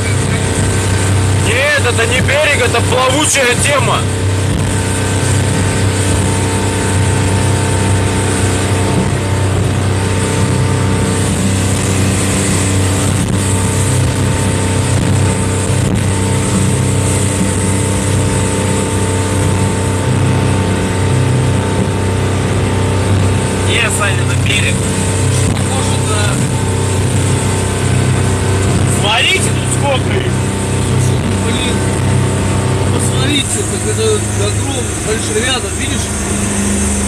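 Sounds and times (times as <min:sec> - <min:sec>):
motorboat engine drone: 0:00.0 - 0:37.0.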